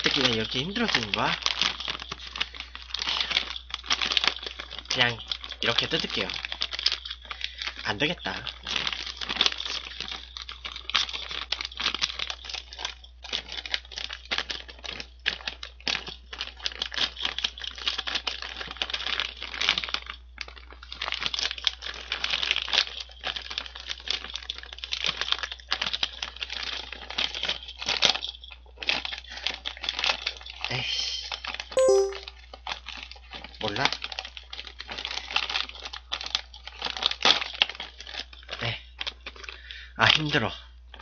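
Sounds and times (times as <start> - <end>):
plastic chip bag crinkling: 0.0 - 31.6, 32.8 - 39.6.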